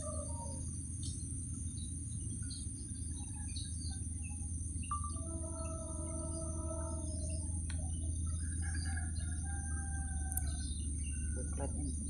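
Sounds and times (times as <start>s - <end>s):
bird chirps: 0.0s - 12.0s
high-pitched insect drone: 0.0s - 12.0s
low steady rumble: 0.0s - 12.0s
distant locomotive horn: 4.9s - 10.7s.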